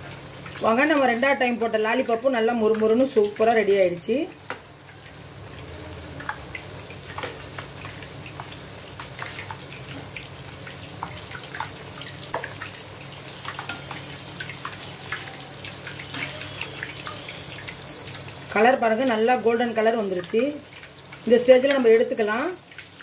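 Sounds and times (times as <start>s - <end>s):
deep-frying sizzle and pops: 0.0s - 23.0s.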